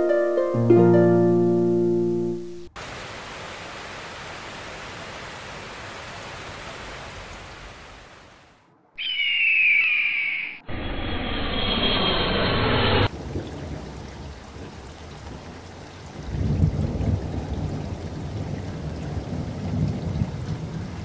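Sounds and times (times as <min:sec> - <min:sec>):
waterfall and rapids roaring: 0:02.6 - 0:08.7.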